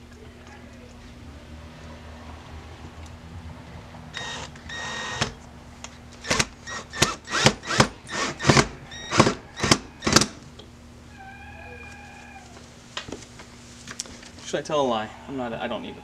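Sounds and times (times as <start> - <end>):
screwdriver squeaking: 4.2 - 5.2
brief squeaky tone: 11.1 - 12.4.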